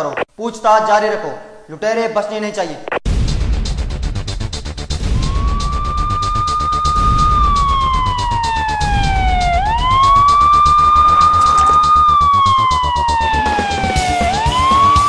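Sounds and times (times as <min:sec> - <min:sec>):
background music with steady beat: 0:03.1 - 0:15.0
police siren wailing: 0:05.0 - 0:15.0.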